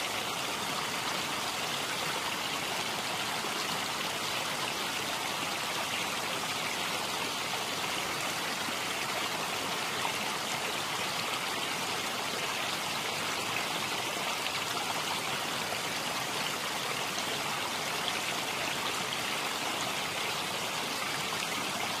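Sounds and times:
rushing flowing water: 0.0 - 22.0.

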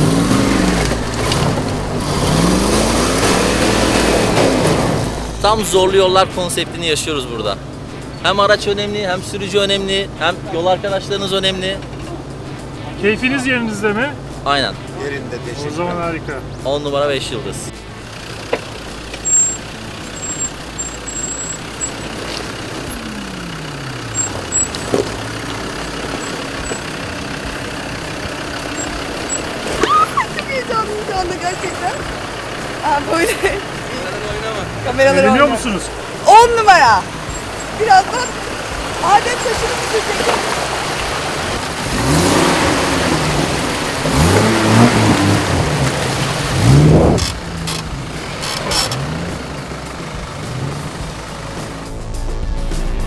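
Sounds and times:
tyres churning mud and water: 0.0 - 7.6, 8.3 - 51.9
engine running at low speed: 17.8 - 53.0.

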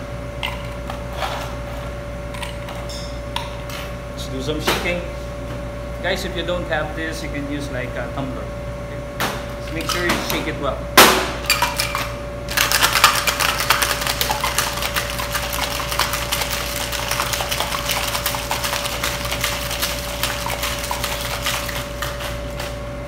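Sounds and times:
ice rattling in cocktail shaker: 11.5 - 22.8.

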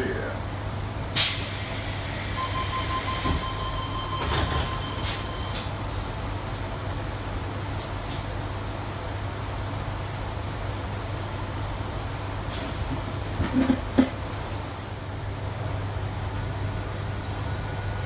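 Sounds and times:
train hum: 0.0 - 18.0
steady warning tone: 2.4 - 5.6
train doors thumping shut: 3.0 - 5.8.

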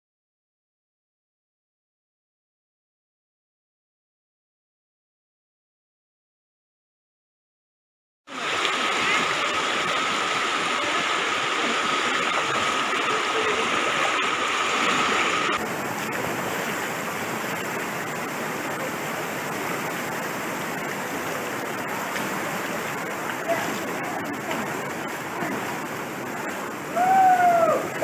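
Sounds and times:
floodwater rushing: 8.3 - 28.0.

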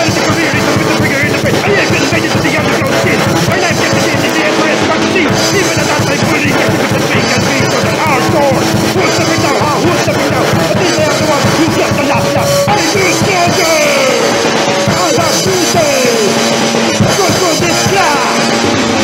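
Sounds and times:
fast rock music: 0.0 - 19.0.

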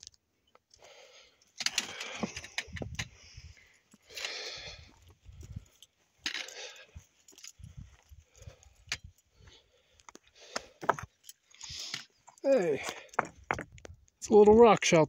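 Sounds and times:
footsteps on scree: 10.0 - 11.2, 12.2 - 13.9
stones clinking: 10.8 - 14.0.

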